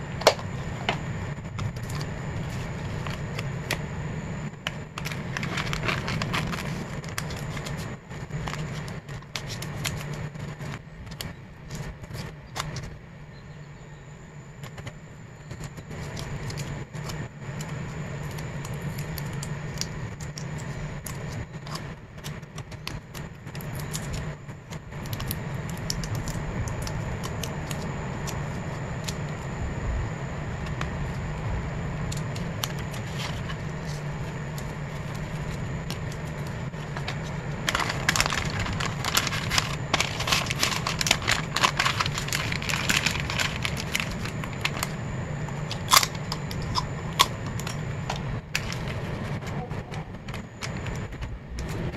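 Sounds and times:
steady low hum: 0:00.0 - 0:51.9
plastic film crackling: 0:04.6 - 0:12.9, 0:32.1 - 0:49.1
plastic sleeves clicking and crinkling: 0:04.6 - 0:12.9, 0:32.1 - 0:45.0.

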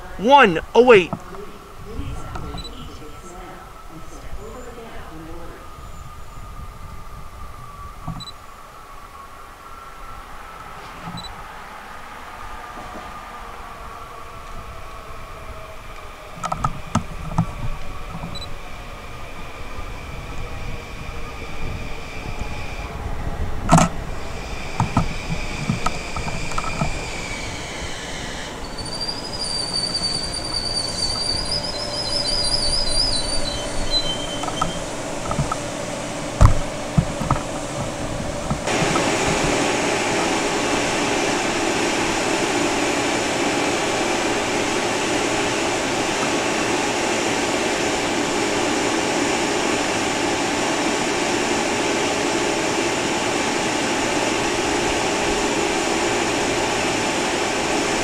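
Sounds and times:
train rushing noise: 0:00.0 - 0:58.0
high metallic squeal: 0:26.2 - 0:34.9.

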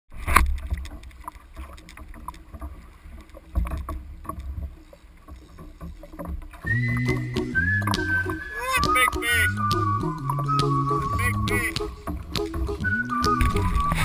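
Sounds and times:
water splashing against kayak hull: 0:00.1 - 0:14.0.

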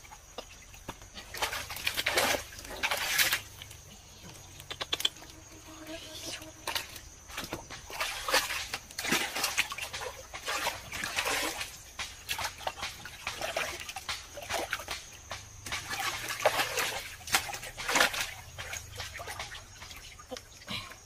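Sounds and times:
splashing in shallow muddy water: 0:00.0 - 0:21.0
fish thrashing in water: 0:01.0 - 0:03.8, 0:06.6 - 0:20.3.

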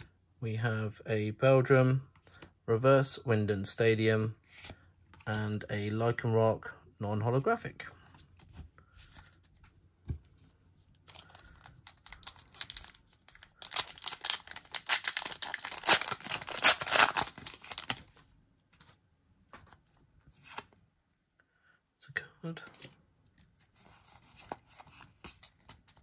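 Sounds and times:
cards rustling: 0:08.1 - 0:19.0, 0:22.6 - 0:26.0
foil wrapper tearing and crinkling: 0:11.3 - 0:18.0.

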